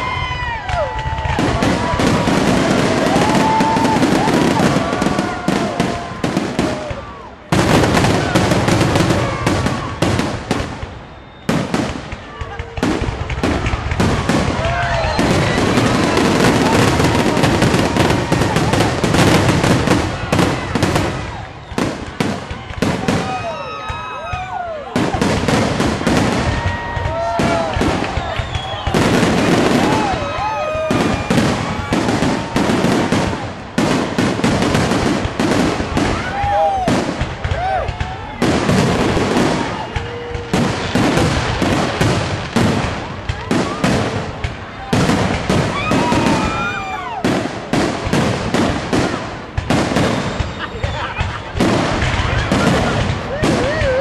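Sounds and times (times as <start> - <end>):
fireworks crackling and popping: 0.0 - 54.0.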